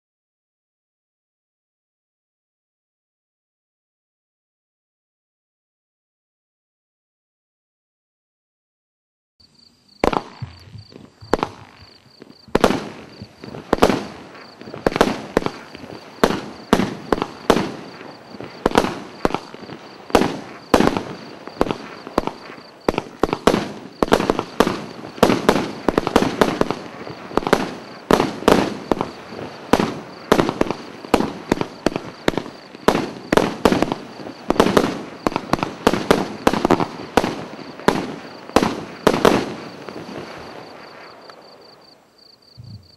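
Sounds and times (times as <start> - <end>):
fireworks cake launch bangs: 10.0 - 41.8.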